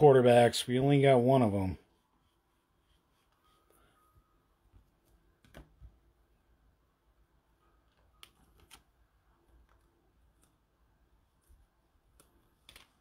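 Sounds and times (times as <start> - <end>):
card handling clicks and rustles: 8.2 - 9.0, 12.1 - 13.0.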